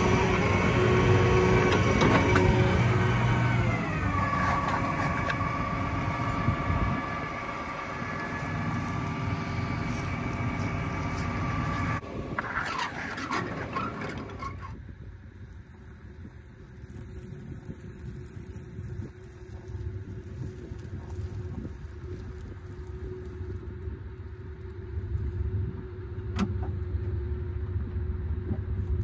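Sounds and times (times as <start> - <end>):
tractor diesel engine running: 0.0 - 14.8.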